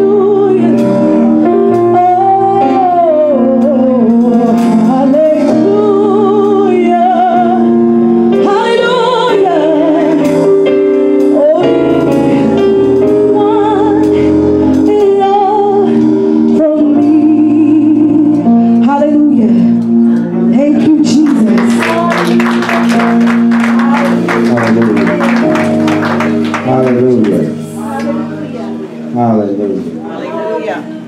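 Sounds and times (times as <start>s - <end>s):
woman singing gospel: 0.0s - 10.6s, 11.2s - 19.8s, 20.4s - 24.2s
sustained keyboard chords: 0.0s - 31.0s
fast percussive beat: 21.3s - 27.6s.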